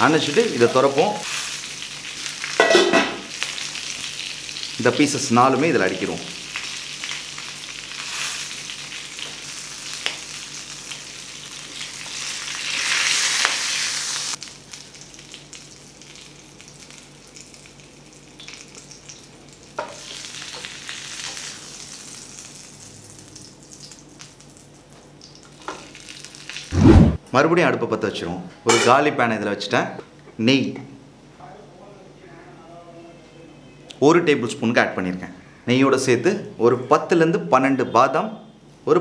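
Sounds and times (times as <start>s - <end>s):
fried chicken sizzling: 0.0s - 27.2s.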